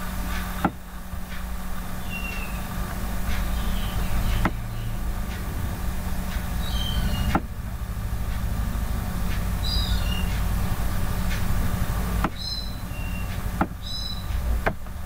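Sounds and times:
low background hum: 0.0s - 15.0s
high falling chirps: 1.9s - 8.6s.

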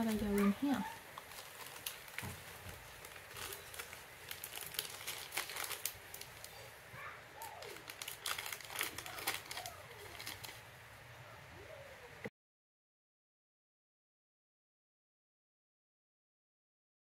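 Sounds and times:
seed packet crinkling: 0.0s - 10.7s.

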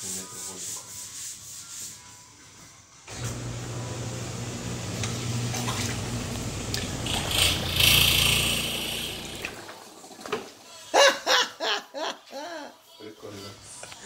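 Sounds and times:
garbage disposer motor humming: 3.1s - 9.8s.

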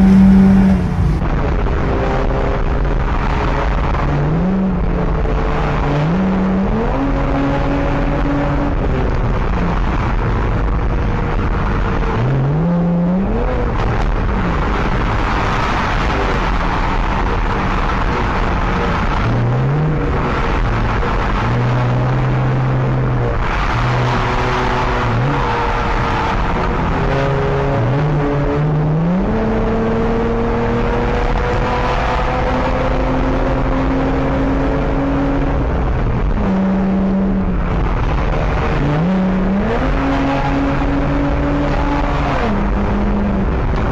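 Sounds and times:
car engine at highway speed: 0.0s - 43.9s
road and wind noise: 0.0s - 43.9s.

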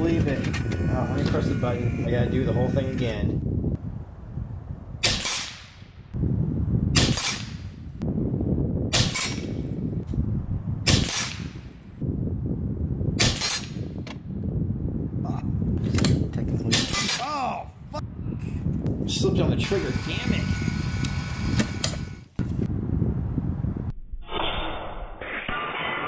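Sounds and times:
air rifle shots: 5.0s - 5.9s, 7.0s - 7.7s, 8.9s - 9.6s, 10.8s - 11.7s, 13.2s - 13.9s.

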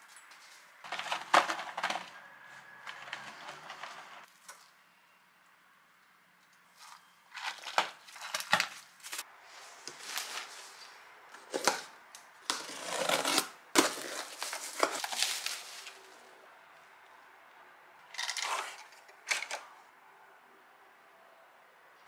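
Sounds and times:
packaging crinkling: 0.9s - 2.2s, 6.8s - 9.2s, 13.2s - 16.0s.

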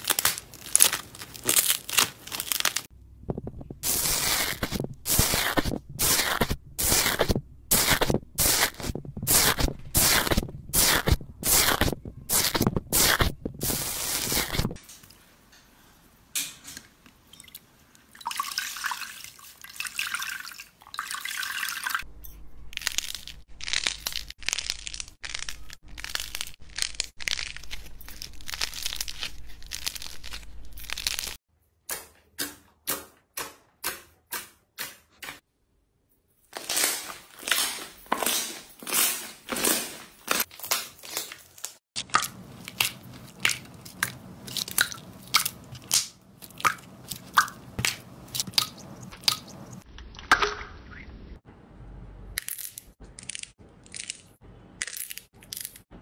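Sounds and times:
foam slime crackling: 3.8s - 14.8s
slime squishes: 36.6s - 50.2s.

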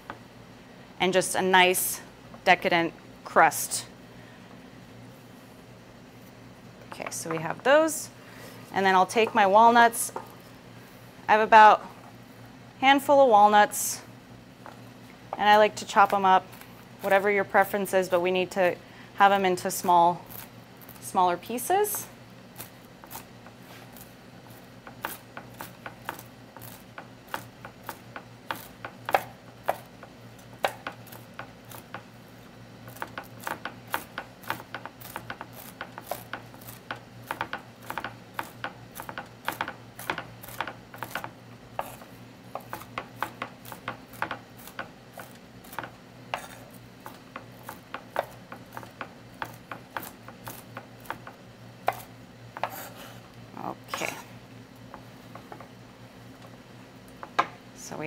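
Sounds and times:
knife chopping nuts on wooden board: 24.4s - 32.1s, 32.9s - 53.0s.

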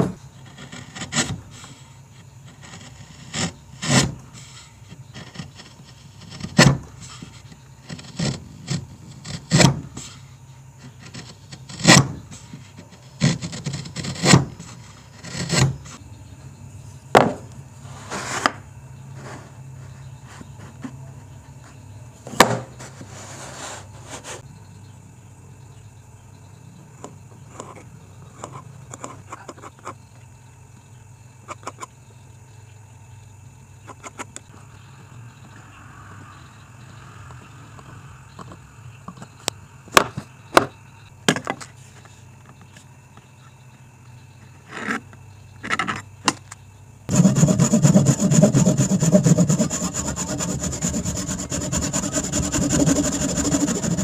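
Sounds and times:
wood-on-wood knocks: 17.2s - 17.5s
pen scratching on wood: 47.1s - 54.0s
saw cutting wooden board: 47.1s - 54.0s.

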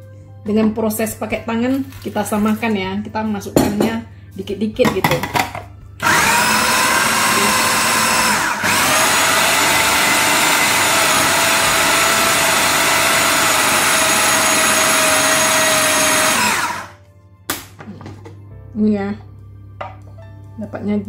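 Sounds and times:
food processor motor whining: 6.0s - 17.0s.

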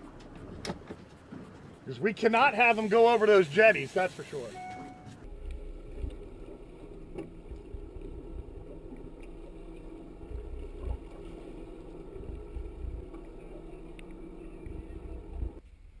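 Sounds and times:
outboard motor running: 5.2s - 15.6s
wind rumbling on microphone: 5.3s - 16.0s.

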